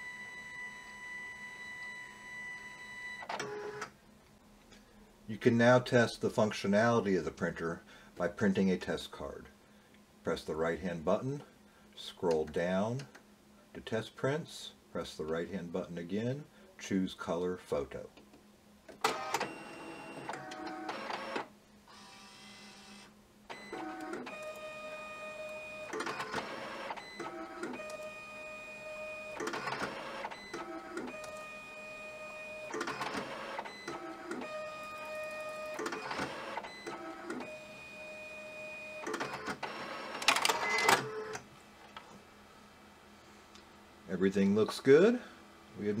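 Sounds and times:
multi-pitched motor whine: 19.3s - 39.0s.

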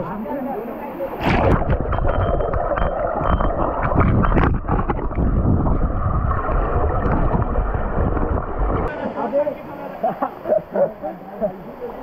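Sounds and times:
water splashes: 1.0s - 10.1s.

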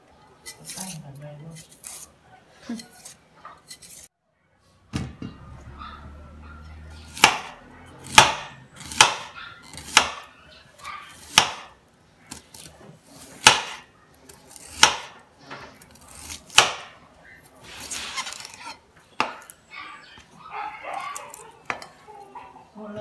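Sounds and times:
knife slicing onion: 0.4s - 4.1s, 7.0s - 19.6s
knife chopping on cutting board: 7.1s - 10.3s, 11.2s - 11.7s, 13.4s - 13.8s, 14.5s - 15.2s, 16.0s - 16.9s.

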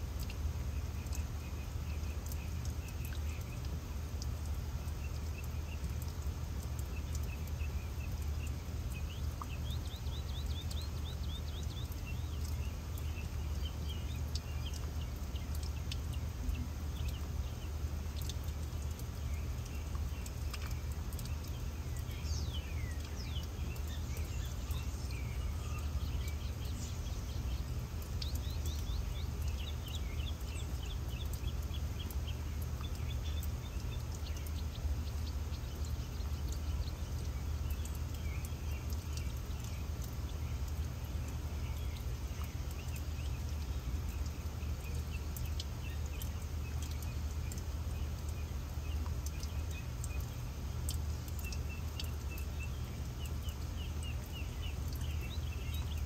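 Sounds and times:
birds chirping and twittering: 0.0s - 56.0s
fountain water running: 0.0s - 56.0s.

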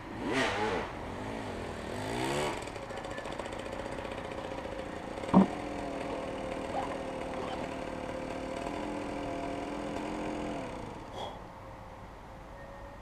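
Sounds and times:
dirt bike engine idling: 1.6s - 11.1s
short sharp knock: 5.3s - 5.5s.

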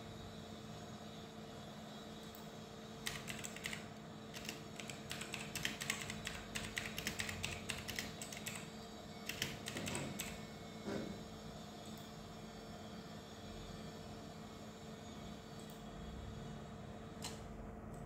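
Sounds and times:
computer keyboard typing: 3.0s - 10.4s.

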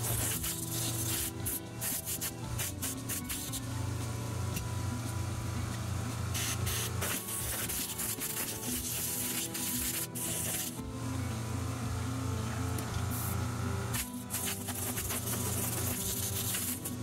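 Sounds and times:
compressed air blow gun hissing: 0.0s - 3.9s, 6.3s - 10.9s, 13.1s - 17.0s.

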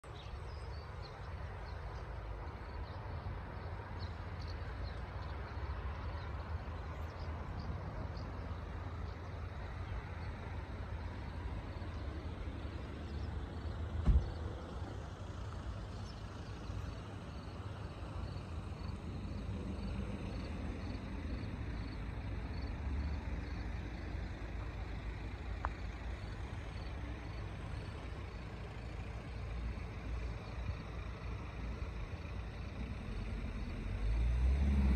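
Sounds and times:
sharp thump: 14.0s - 14.4s.

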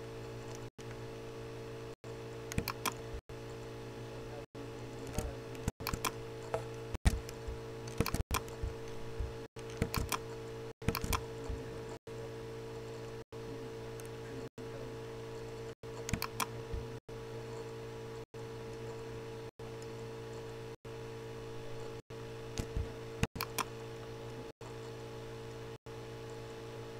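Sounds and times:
steady low hum: 0.0s - 26.9s
computer clicks: 2.5s - 3.7s, 5.0s - 9.0s, 9.6s - 11.3s, 15.9s - 16.5s, 22.6s - 23.7s.

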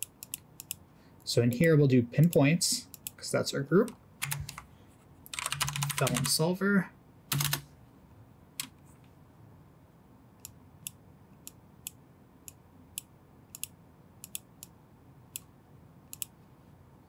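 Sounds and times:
computer mouse clicking: 0.0s - 0.8s, 5.3s - 6.3s, 10.4s - 14.8s, 16.1s - 16.4s.

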